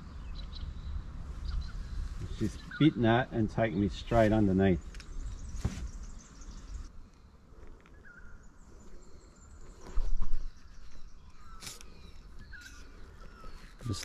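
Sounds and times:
faint bird chirp: 0.0s - 14.0s.

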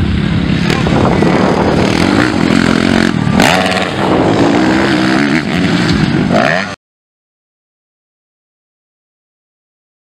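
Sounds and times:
dirt bike engines revving: 0.0s - 6.8s.

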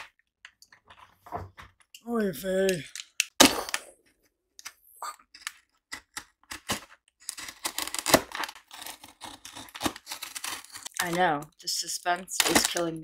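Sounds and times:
scraping and tearing of tape: 5.2s - 11.2s.

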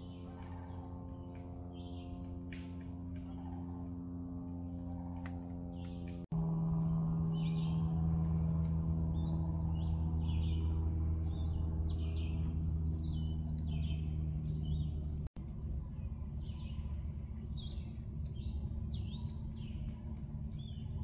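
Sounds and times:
songbirds chirping and singing: 0.0s - 6.2s, 7.3s - 21.0s
steady low hum: 0.0s - 21.0s.

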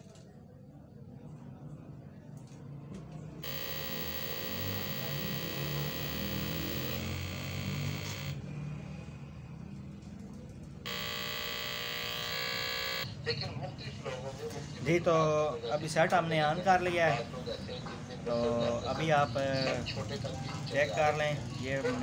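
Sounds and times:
steady buzzing tone: 3.4s - 8.4s, 10.9s - 13.1s.

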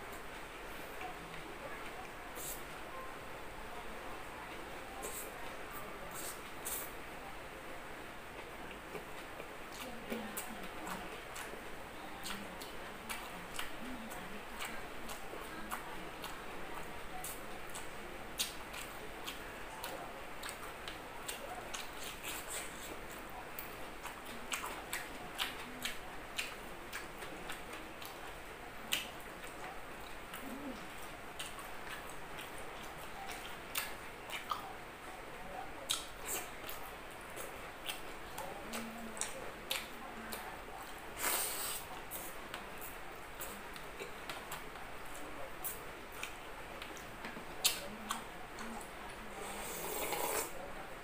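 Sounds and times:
chewing with wet mouth clicks: 8.3s - 34.8s, 35.6s - 49.3s
sipping broth: 49.4s - 50.6s.

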